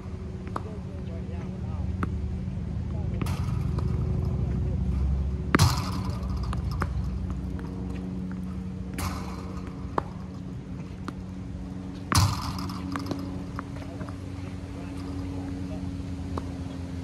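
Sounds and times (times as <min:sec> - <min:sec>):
steady low hum: 0:00.0 - 0:17.0
ball hit knocks: 0:03.1 - 0:16.6
ball machine firing pops: 0:05.5 - 0:07.7, 0:12.1 - 0:13.6.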